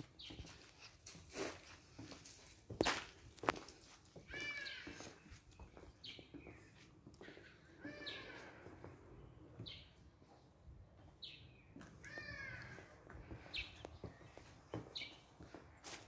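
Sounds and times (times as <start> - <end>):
high-pitched animal calls: 7.8 - 8.7.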